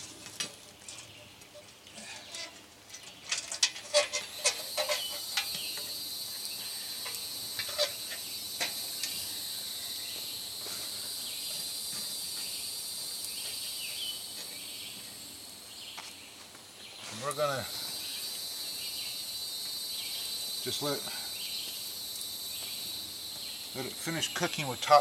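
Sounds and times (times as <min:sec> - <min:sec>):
charcoal clinking on metal: 0:00.4 - 0:09.3
tongs clinking on coals: 0:00.8 - 0:10.0
insect chorus: 0:01.9 - 0:25.0.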